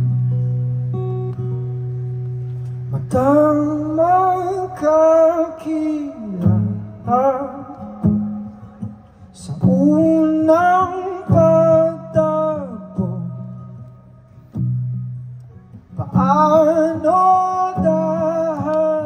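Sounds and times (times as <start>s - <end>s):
strummed acoustic guitar: 0.0s - 19.0s
man singing: 2.9s - 13.9s, 16.0s - 19.0s.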